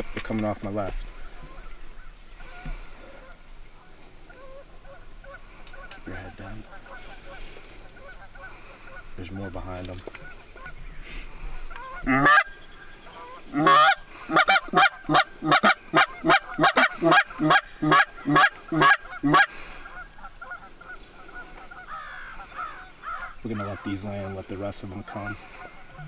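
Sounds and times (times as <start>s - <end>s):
goose call honks and clucks: 1.1s - 3.4s, 4.3s - 9.6s, 11.7s - 12.5s, 13.1s - 26.0s.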